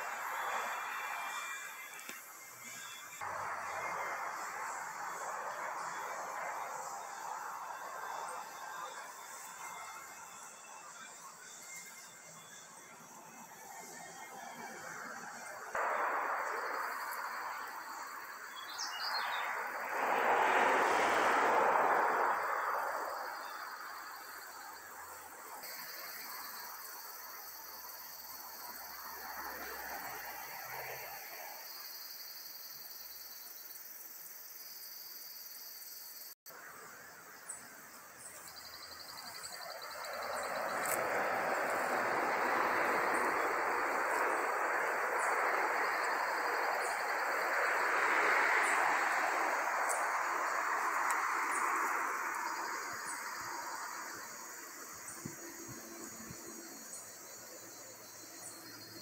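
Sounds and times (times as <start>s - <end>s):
broad rushing noise: 0.0s - 9.6s, 15.5s - 25.0s, 39.6s - 56.3s
high-pitched insect drone: 0.0s - 59.0s.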